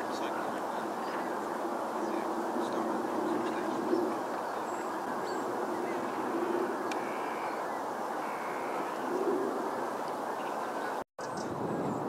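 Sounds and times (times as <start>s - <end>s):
distant high bird calls: 0.0s - 12.0s
outdoor background rush: 0.0s - 12.0s.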